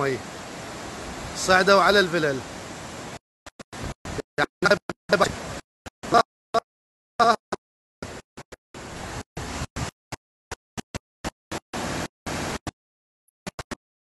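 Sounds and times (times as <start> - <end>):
floodwater rushing: 0.0 - 6.2, 8.8 - 9.9, 11.5 - 12.6
clipped voice: 7.2 - 7.5.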